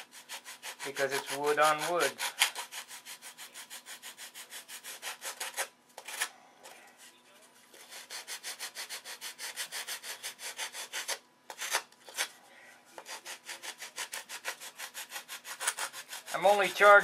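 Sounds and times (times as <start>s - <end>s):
sandpaper rubbing wood: 0.0s - 5.7s, 7.8s - 12.3s, 13.0s - 17.0s.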